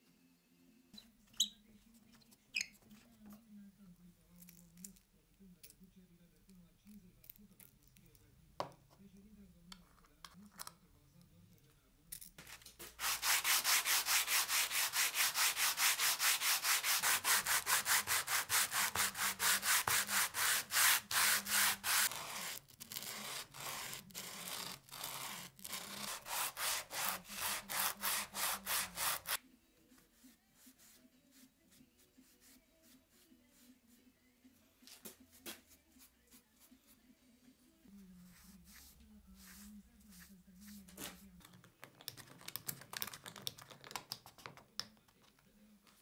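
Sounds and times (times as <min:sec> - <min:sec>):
wood block rasping on sandpaper: 0:12.8 - 0:29.4.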